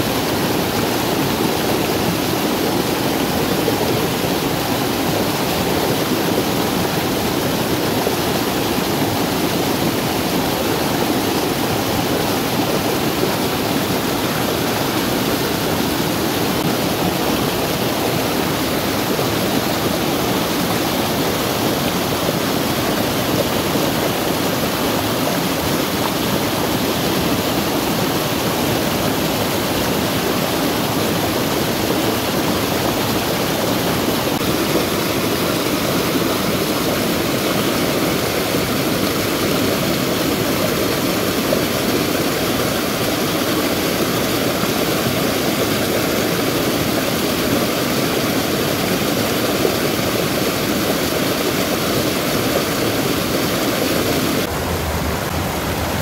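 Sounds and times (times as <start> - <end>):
stream rushing over rocks: 0.0 - 56.0.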